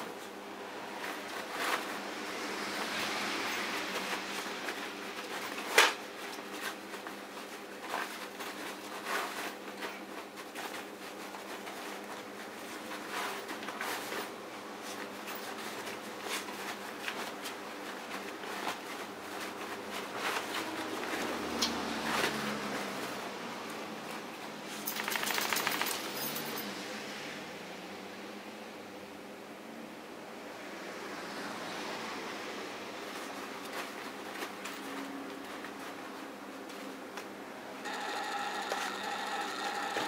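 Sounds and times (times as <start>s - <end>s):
dog rustling fabric: 0.0s - 26.4s, 33.0s - 37.2s.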